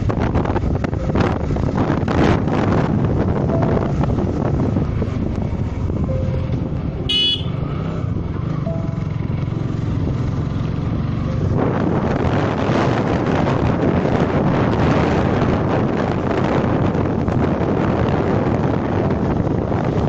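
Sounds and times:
motorcycle engine running: 0.0s - 20.0s
wind buffeting microphone: 0.0s - 20.0s
vehicle horn toot: 7.0s - 7.6s.

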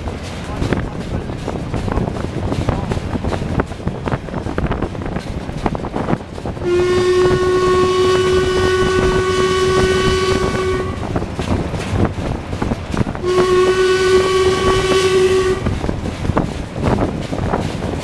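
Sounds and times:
train rattling and clattering: 0.0s - 18.0s
steam whistle blast: 6.6s - 11.1s, 13.2s - 15.8s.

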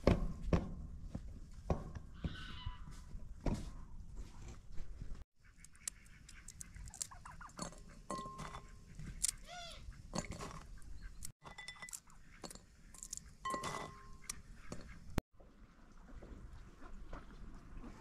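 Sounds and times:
animal or bird call: 2.2s - 2.9s, 8.2s - 10.0s.

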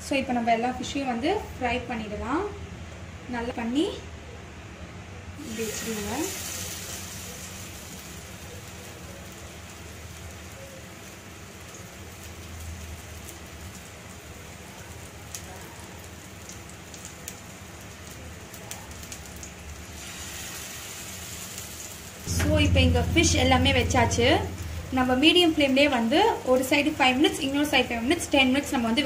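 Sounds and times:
fish sizzling in oil: 5.4s - 22.2s.

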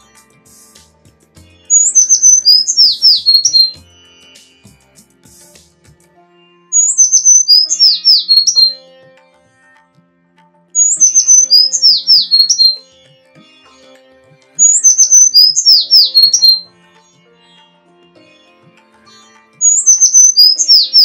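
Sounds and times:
bird song whistled notes: 0.0s - 5.6s, 6.7s - 8.9s, 10.8s - 12.9s, 14.6s - 16.7s, 19.6s - 21.0s
faint background music: 0.0s - 21.0s.

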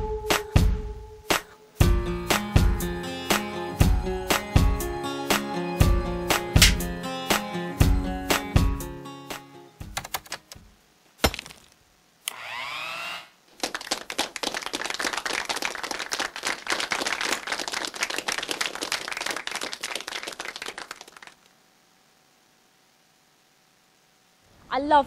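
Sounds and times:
sharp knock: 6.6s - 6.8s
electric hand mixer whirring: 12.3s - 13.3s.

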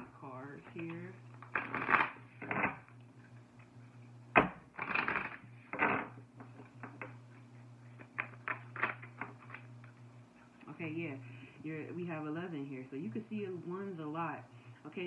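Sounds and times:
cards riffling: 1.4s - 2.8s, 4.8s - 6.0s, 8.0s - 9.7s
cards snapping: 1.4s - 2.8s.

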